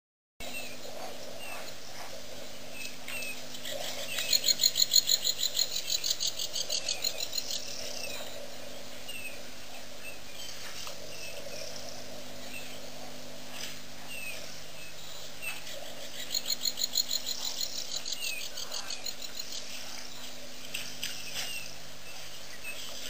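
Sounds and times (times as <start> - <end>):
rapid high-pitched animal calls: 0.4 - 9.4, 15.1 - 20.3
steady outdoor hiss: 0.4 - 23.0.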